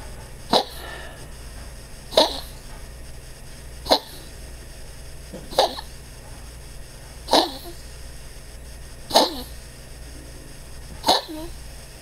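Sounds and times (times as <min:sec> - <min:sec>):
small dog coughing and retching: 0:05.4 - 0:05.9, 0:11.0 - 0:11.5.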